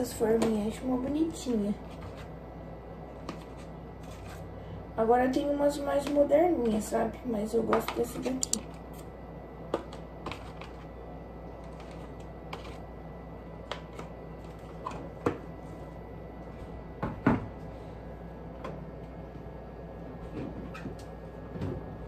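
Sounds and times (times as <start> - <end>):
plastic clicks and taps: 8.4 - 8.6.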